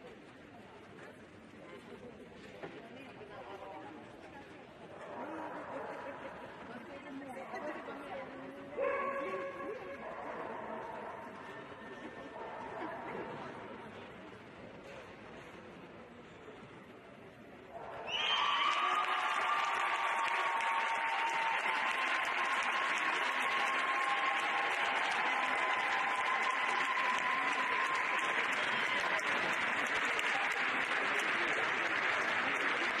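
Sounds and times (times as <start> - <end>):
audience applauding: 17.8 - 33.0.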